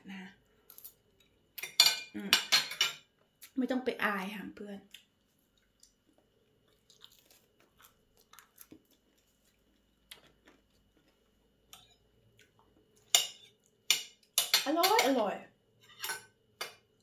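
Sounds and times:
faint chewing: 4.8s - 13.8s.

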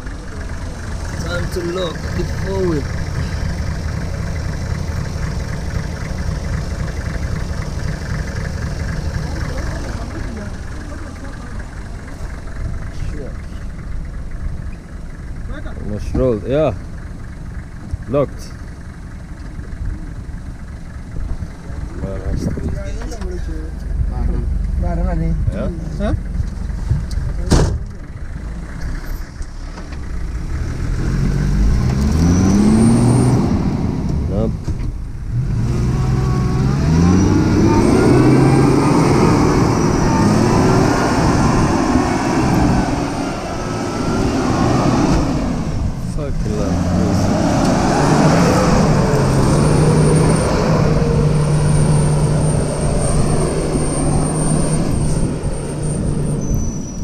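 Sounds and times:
engine revving: 0.0s - 13.7s, 28.4s - 57.0s
engine idling with ticking clatter: 0.0s - 33.0s, 33.8s - 36.8s, 45.1s - 46.7s.

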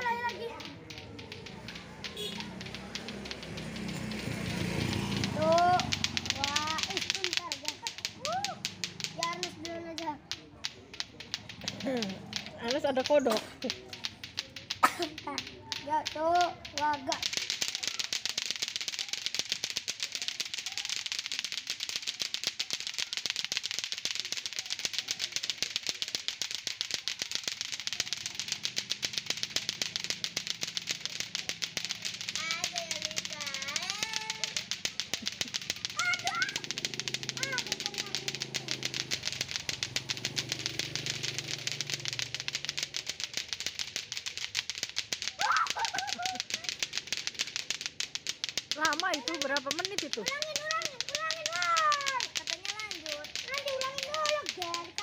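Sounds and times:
clacker toys clattering: 0.0s - 55.0s
girl laughing: 14.8s - 15.2s, 45.4s - 46.7s.

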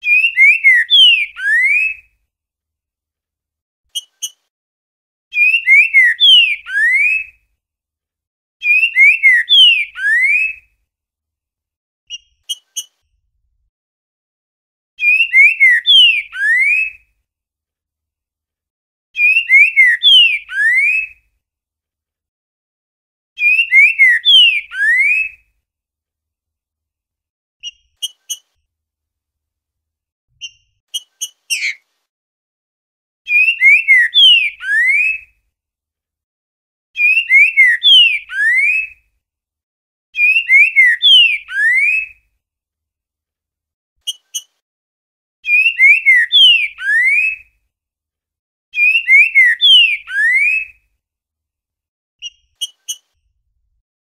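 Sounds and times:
bird singing gliding whistles: 0.0s - 2.1s, 5.3s - 7.3s, 8.6s - 10.7s, 15.0s - 17.0s, 19.2s - 21.2s, 23.4s - 25.4s, 33.3s - 35.3s, 37.0s - 39.0s, 40.2s - 42.2s, 45.4s - 47.4s, 48.8s - 50.8s.

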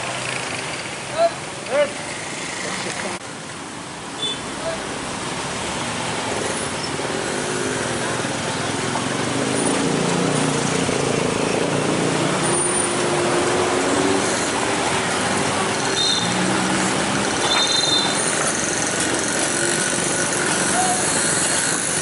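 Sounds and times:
motorcycle engines: 0.0s - 22.0s
road noise: 0.0s - 22.0s
truck diesel engine: 4.5s - 22.0s
short high-pitched squeals: 15.8s - 16.5s, 17.4s - 19.7s.

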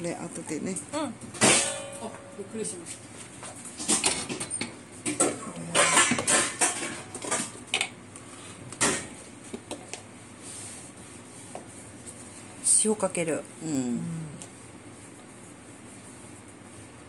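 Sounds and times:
dishes and cutlery clinking: 3.8s - 7.5s.

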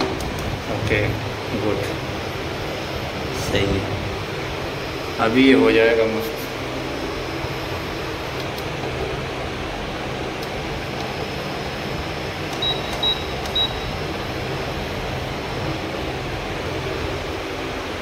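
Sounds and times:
induction cooktop fan hum: 0.0s - 18.0s
short high beeps: 12.6s - 14.0s.

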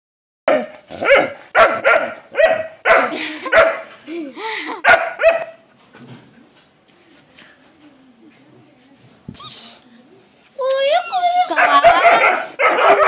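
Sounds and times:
dog barking: 0.5s - 3.9s, 4.8s - 5.6s, 11.5s - 13.0s.

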